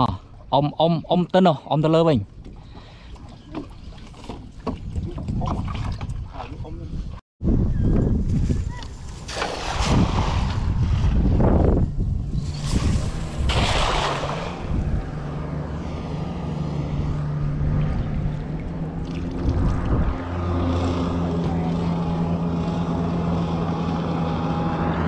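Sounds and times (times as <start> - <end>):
net splashing into water: 9.1 - 11.2, 12.4 - 15.2
motorboat engine droning: 11.8 - 25.0.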